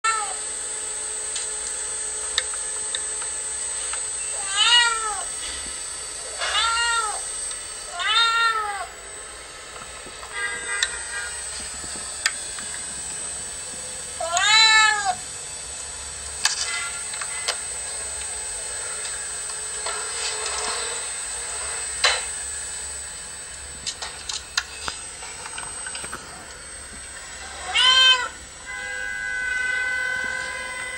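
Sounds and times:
cat meowing: 0.1 - 0.4, 4.4 - 5.3, 6.3 - 7.2, 7.9 - 8.9, 14.2 - 15.2, 27.5 - 28.4.

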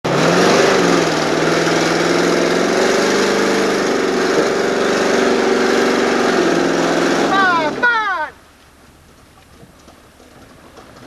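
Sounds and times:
truck engine running under load: 0.1 - 7.9.

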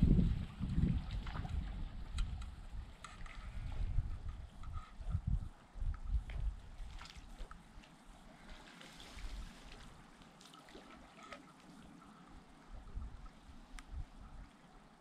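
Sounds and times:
wind buffeting microphone: 0.0 - 7.7
water splashes and drips: 0.4 - 4.0, 5.2 - 14.7
river trickling over stones: 6.4 - 15.0.

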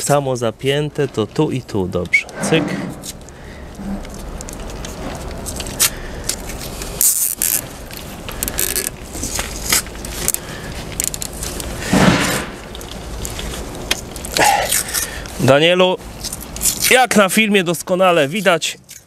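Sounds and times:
handling noise: 2.0 - 14.4
loud scrape: 2.2 - 3.2, 11.8 - 12.6
cable ties zipping tight: 5.6 - 10.4.

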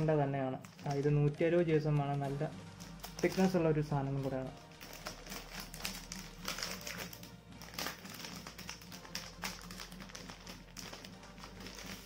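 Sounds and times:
background music: 0.0 - 12.0
plastic sleeve crinkling: 0.0 - 12.0.

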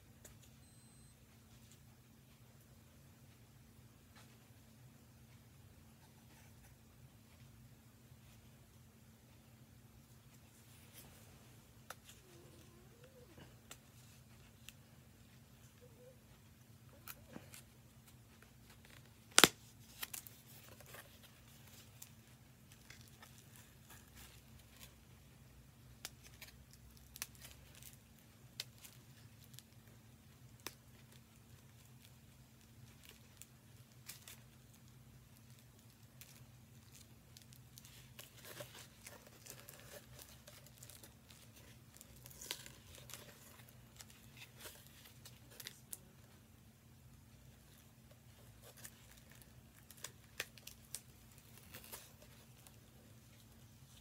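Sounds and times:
packaging crinkles and clicks: 30.5 - 46.0, 47.7 - 52.8.

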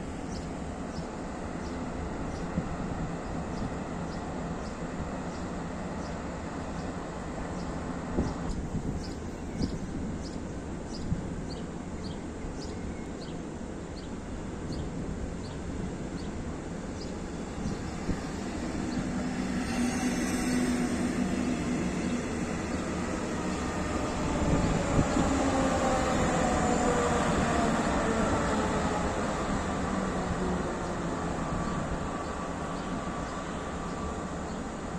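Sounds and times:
train wheels rumbling on rail: 14.0 - 34.9.

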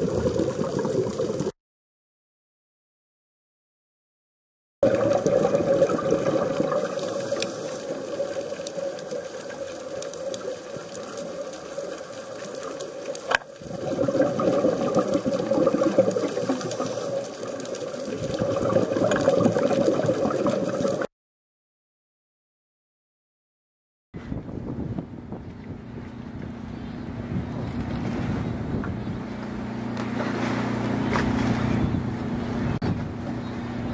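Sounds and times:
underwater rushing water: 0.0 - 1.5, 4.8 - 21.1.

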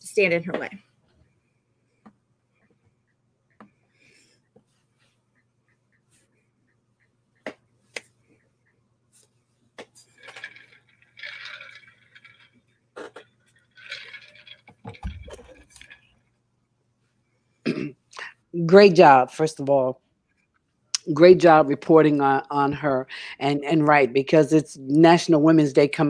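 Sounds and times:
rustling handling noise: 9.1 - 16.3.

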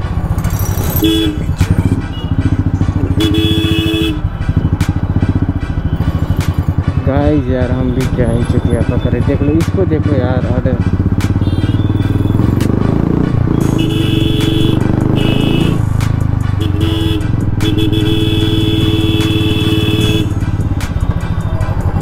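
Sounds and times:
motorcycle engine running: 0.0 - 22.0
vehicle horn blasts: 1.0 - 2.4, 3.1 - 4.4, 11.4 - 12.4, 13.6 - 15.8, 16.6 - 20.4.

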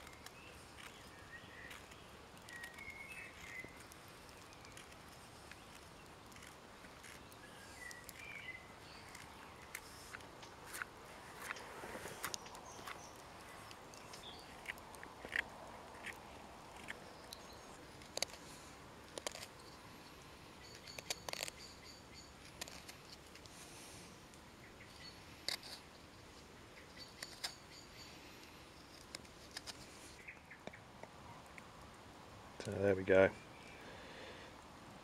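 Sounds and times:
bird chirps: 0.0 - 4.9, 7.0 - 10.2, 20.6 - 22.7, 24.6 - 25.3
knife scraping wood: 0.0 - 8.3, 8.9 - 19.7, 20.7 - 21.6, 22.4 - 23.8, 25.3 - 25.9, 27.1 - 27.6, 28.8 - 30.2.

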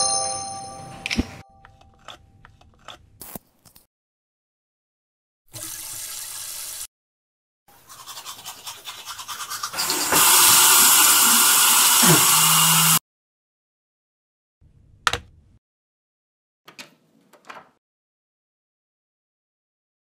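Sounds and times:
toothbrush scrubbing teeth: 7.7 - 13.0.

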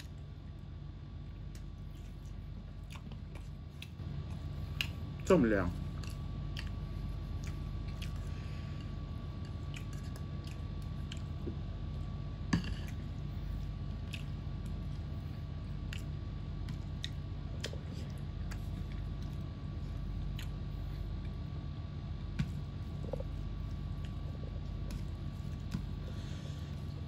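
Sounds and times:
steady low hum: 0.0 - 27.0
person chewing: 1.3 - 21.6.

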